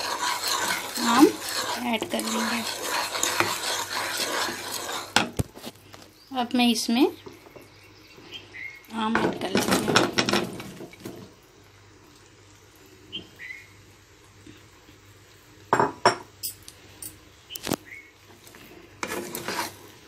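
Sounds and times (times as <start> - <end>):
spatula scraping: 0.0 - 5.8, 18.8 - 20.0.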